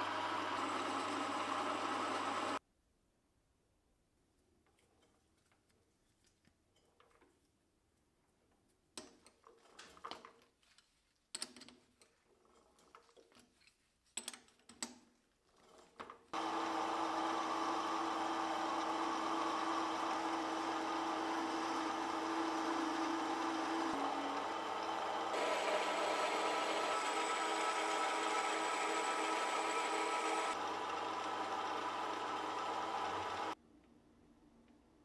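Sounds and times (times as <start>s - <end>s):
lathe running with hum: 0.0s - 2.6s, 16.4s - 33.6s
turning tool cutting steel: 0.0s - 2.6s, 16.4s - 33.6s.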